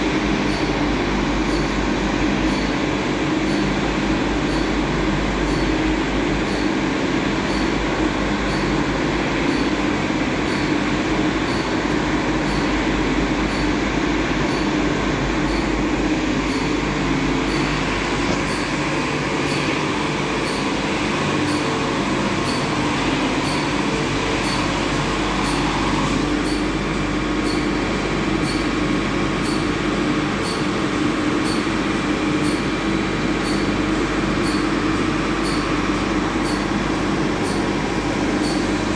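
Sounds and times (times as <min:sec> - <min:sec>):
machine hum: 0:00.0 - 0:38.9.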